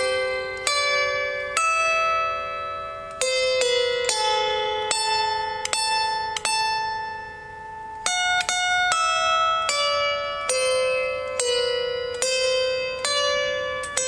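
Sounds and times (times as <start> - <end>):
harp plucked notes: 0.0 - 14.0.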